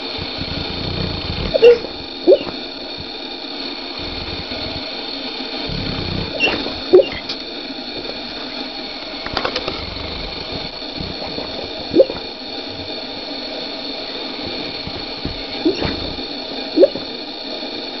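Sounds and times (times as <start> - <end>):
squeaky snorts: 0.0 - 3.2, 3.9 - 5.0, 5.6 - 7.4, 9.3 - 13.0, 14.4 - 17.1
dog snoring: 0.0 - 17.3.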